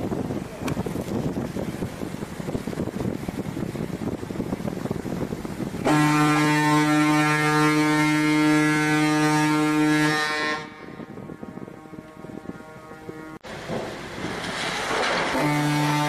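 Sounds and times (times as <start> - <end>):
wind noise on microphone: 0.0 - 16.0
ship's deep horn blast: 5.8 - 13.5, 15.2 - 16.0.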